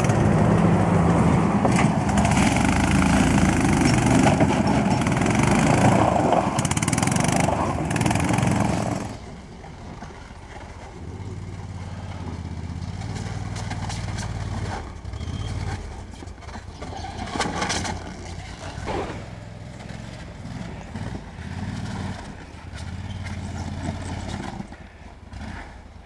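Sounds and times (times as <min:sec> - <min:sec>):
tracked vehicle engine revving: 0:00.0 - 0:09.3, 0:17.1 - 0:25.8.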